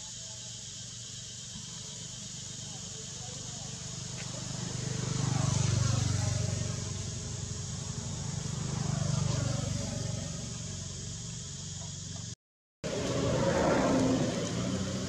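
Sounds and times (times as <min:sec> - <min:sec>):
steady high hiss: 0:00.0 - 0:04.1
passing motor vehicles: 0:03.4 - 0:15.0.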